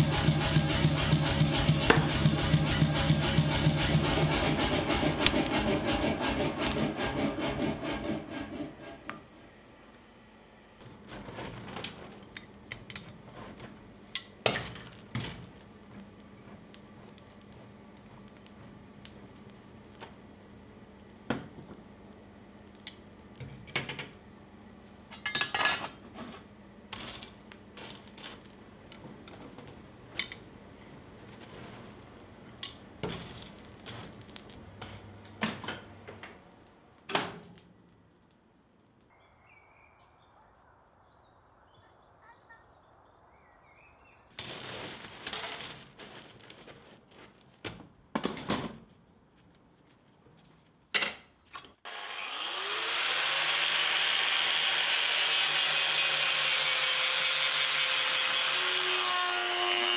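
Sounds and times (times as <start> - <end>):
coal clinking and crunching: 44.4 - 47.6.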